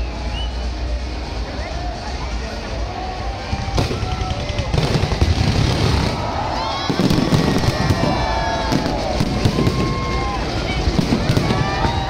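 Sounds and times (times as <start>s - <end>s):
fireworks bursting: 3.4s - 12.0s.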